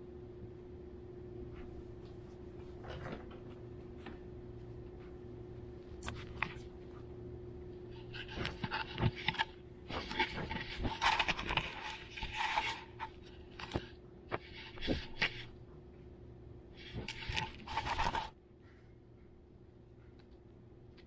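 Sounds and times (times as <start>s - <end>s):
scraping with sharp clicks: 7.9s - 15.5s.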